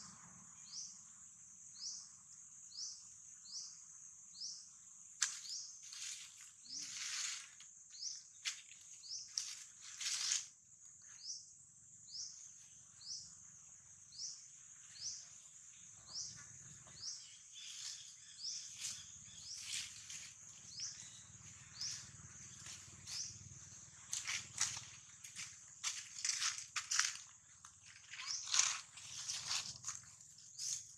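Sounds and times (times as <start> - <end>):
high insect buzz: 2.7 - 10.6, 17.0 - 30.9
dry leaf litter rustling: 5.8 - 7.6, 9.3 - 10.5, 28.0 - 30.8.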